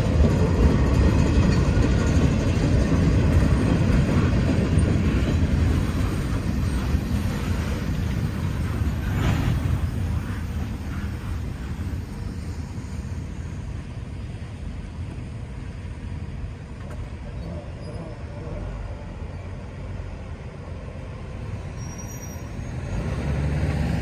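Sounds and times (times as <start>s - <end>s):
freight train rumbling: 0.0s - 24.0s
road traffic: 0.0s - 24.0s
truck engine: 21.2s - 24.0s.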